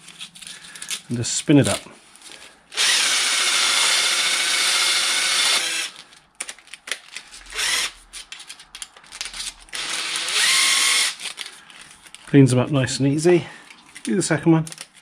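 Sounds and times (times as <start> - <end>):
cordless drill whirring: 2.7 - 6.0, 7.5 - 8.0, 9.7 - 11.4.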